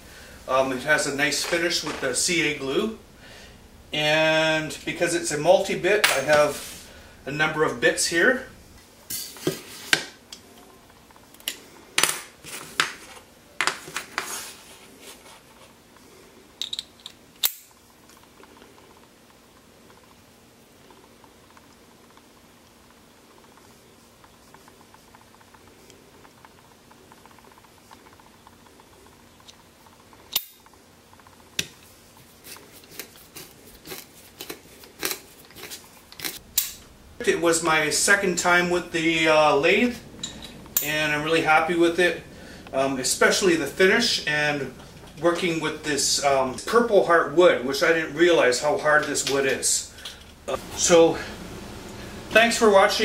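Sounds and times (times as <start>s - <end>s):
screwdriver bits clicking and clattering: 16.6s - 17.6s.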